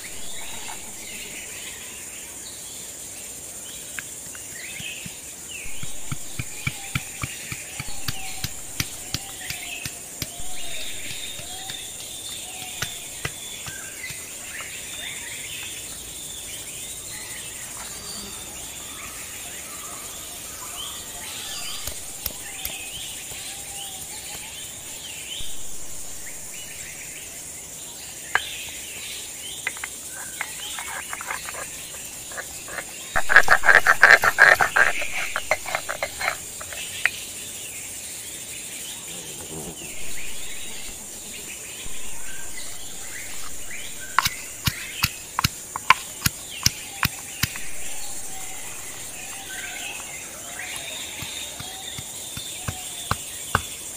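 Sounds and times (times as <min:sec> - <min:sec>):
birdsong: 0:00.0 - 0:53.9
insect drone: 0:00.0 - 0:53.9
pestle knocking in stone mortar: 0:04.8 - 0:14.7, 0:44.1 - 0:47.6, 0:50.7 - 0:53.8
rasping on stone grinding slab: 0:30.2 - 0:36.8.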